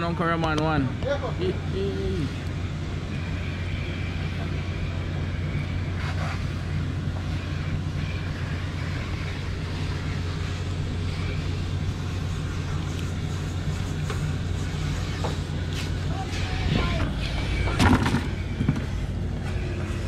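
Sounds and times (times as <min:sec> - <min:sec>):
machinery humming: 0:00.0 - 0:20.0.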